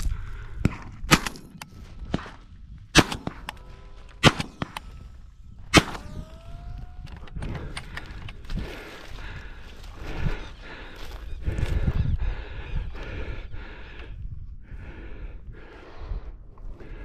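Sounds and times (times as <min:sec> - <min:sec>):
loud gunshots: 0:02.9 - 0:03.5, 0:04.2 - 0:04.9, 0:05.7 - 0:06.6.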